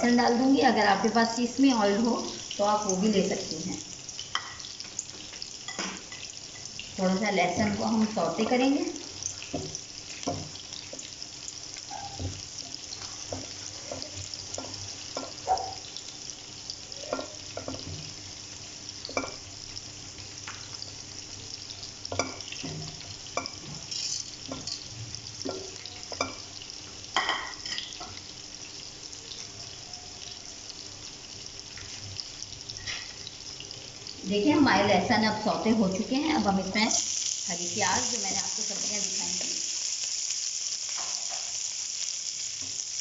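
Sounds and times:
garlic sizzling in oil: 0.0s - 43.0s
spatula scraping and tapping pan: 12.1s - 15.6s, 22.1s - 26.5s.

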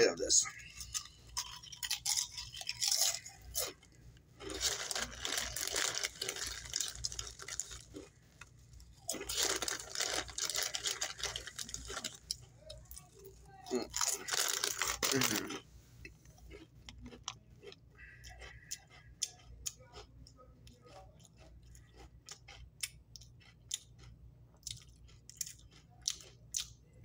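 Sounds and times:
chewing crunchy chips: 0.0s - 27.0s.

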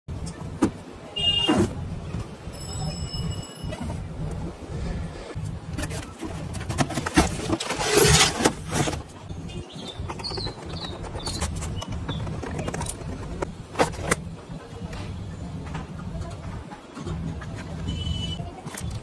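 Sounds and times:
cardboard scraping rustles: 5.7s - 9.2s.

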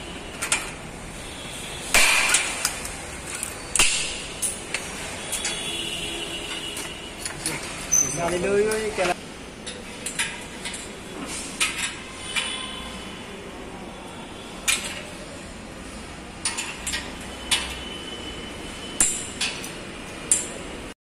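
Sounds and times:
metallic clicks and clinks: 2.3s - 5.7s.

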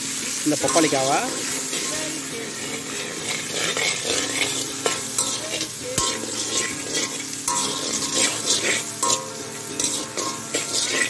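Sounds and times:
papaya sizzling in oil: 0.0s - 11.0s
metal spatula scraping a pan: 0.2s - 11.0s.

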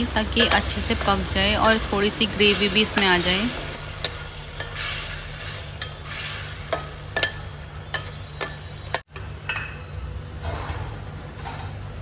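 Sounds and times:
curry sizzling in pan: 0.0s - 9.9s
spatula clicking on metal pan: 6.7s - 9.7s.

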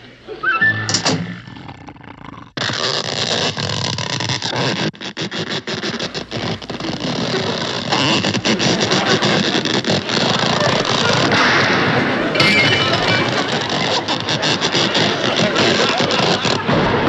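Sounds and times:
cartoon elephant snoring: 0.6s - 2.6s.

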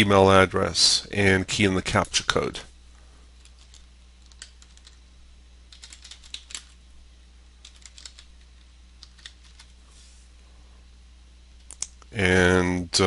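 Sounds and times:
faint low hum: 0.0s - 13.0s
computer keyboard typing: 3.4s - 5.0s, 5.7s - 6.8s, 7.6s - 9.8s.

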